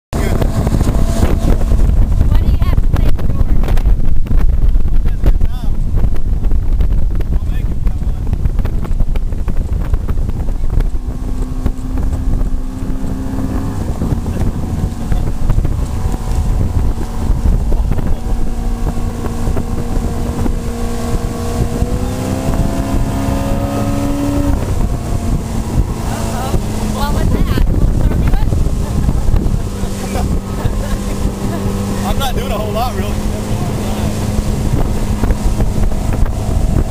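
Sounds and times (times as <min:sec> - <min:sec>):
boat wake rushing: 0:00.1 - 0:36.9
outboard motor running: 0:00.1 - 0:36.9
wind buffeting microphone: 0:00.1 - 0:36.9.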